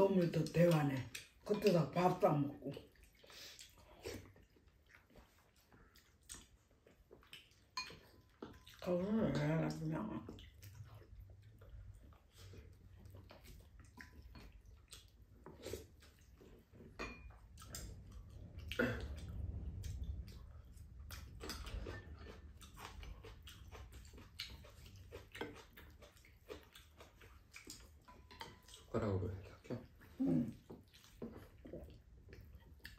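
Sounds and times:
people chewing: 0:00.0 - 0:32.9
low hum: 0:17.2 - 0:23.7.

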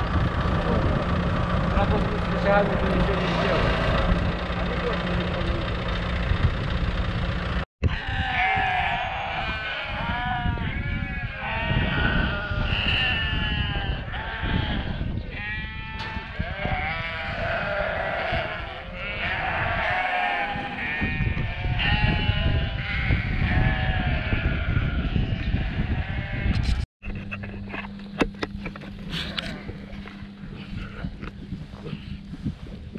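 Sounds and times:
engine idling: 0:00.0 - 0:07.7
low rumble: 0:00.0 - 0:07.7
sheep bleating: 0:07.8 - 0:26.6.

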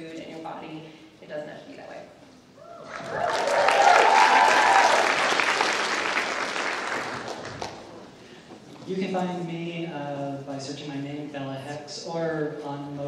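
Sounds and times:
audience applauding: 0:02.8 - 0:08.0.

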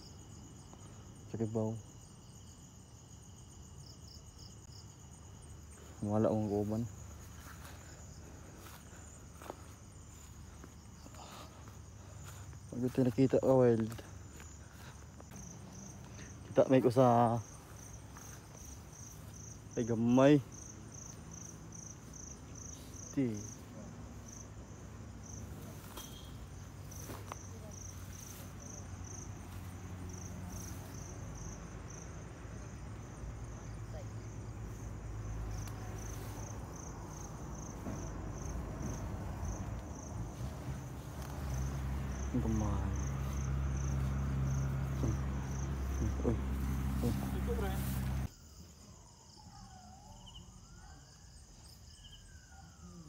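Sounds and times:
cricket chirping: 0:00.0 - 0:53.0.

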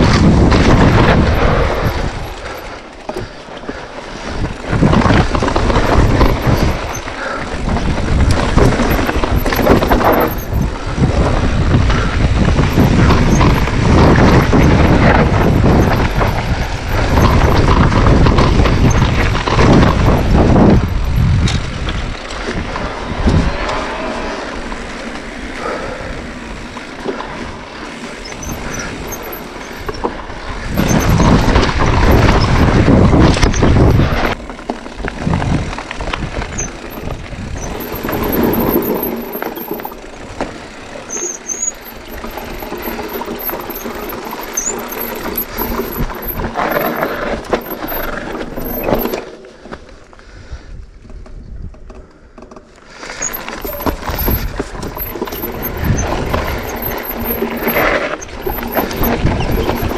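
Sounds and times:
wind buffeting microphone: 0:00.0 - 0:02.6, 0:04.1 - 0:23.8, 0:27.4 - 0:40.9, 0:50.2 - 0:52.0, 0:53.6 - 0:59.9
bike rattling: 0:00.0 - 0:59.9.

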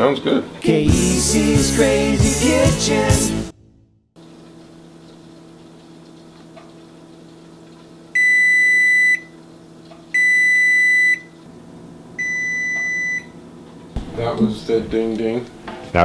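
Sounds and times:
oven timer beeping: 0:08.2 - 0:09.4, 0:10.1 - 0:11.4, 0:12.2 - 0:13.4.

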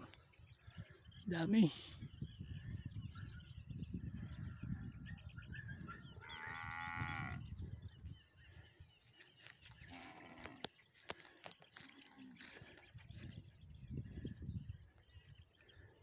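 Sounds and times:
faint bird chirps: 0:00.0 - 0:16.0
cow mooing: 0:06.2 - 0:07.4.

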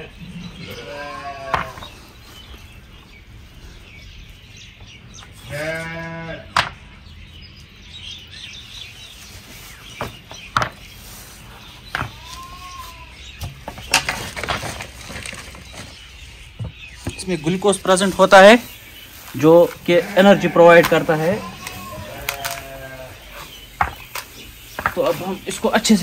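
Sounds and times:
sheep bleating: 0:00.6 - 0:01.8, 0:05.5 - 0:06.5, 0:19.8 - 0:23.4.

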